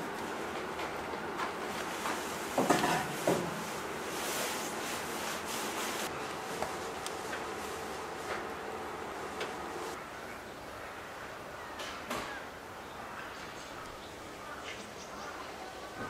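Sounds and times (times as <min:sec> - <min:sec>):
wood fire crackling: 0:00.0 - 0:10.0.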